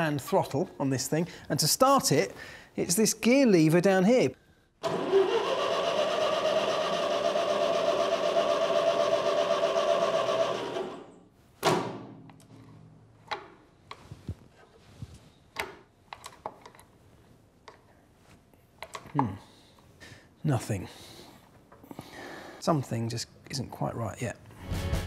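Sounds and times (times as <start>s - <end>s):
starter motor cranking engine: 4.8s - 11.1s.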